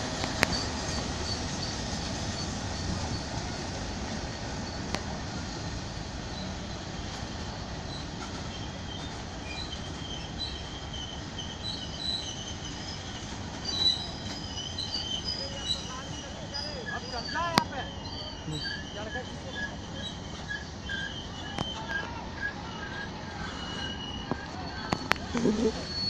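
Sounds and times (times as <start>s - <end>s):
wheel squeals: 0.0s - 26.0s
wheels rumbling on rails: 0.0s - 26.0s.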